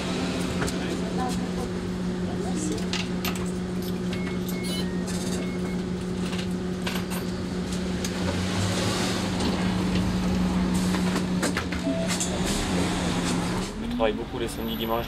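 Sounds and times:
bus engine idling: 0.0s - 6.8s
ticket machine beeps and clicks: 3.8s - 5.8s, 11.8s - 12.6s
bus doors closing: 8.1s - 14.1s.

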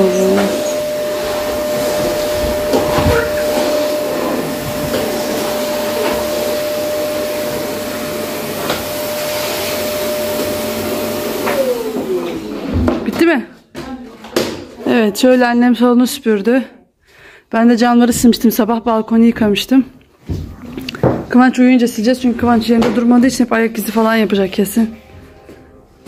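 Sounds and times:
vacuum cleaner motor whine: 0.0s - 12.9s.

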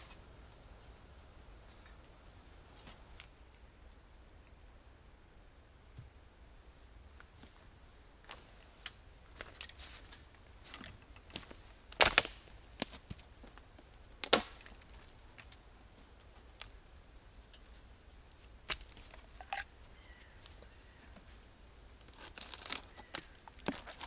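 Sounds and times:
firewood cracking and snapping: 11.2s - 15.6s, 22.0s - 24.0s.

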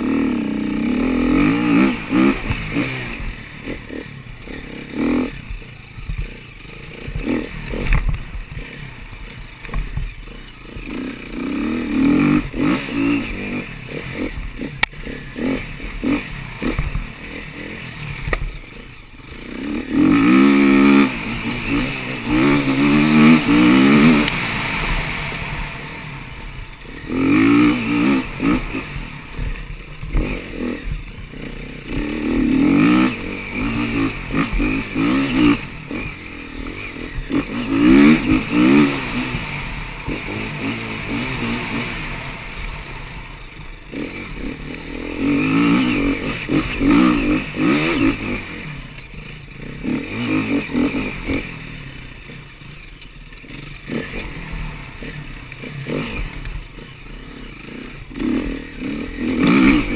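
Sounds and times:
dirt bike engine revving: 0.0s - 59.9s.

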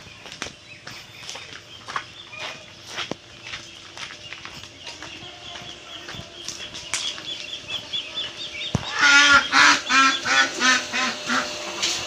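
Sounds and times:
small bird chirping: 0.0s - 10.4s
duck quacking: 5.5s - 11.6s.

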